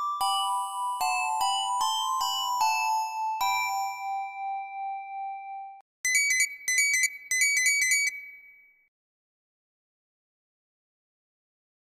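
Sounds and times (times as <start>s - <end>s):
ringtone chime note: 0.0s - 8.9s.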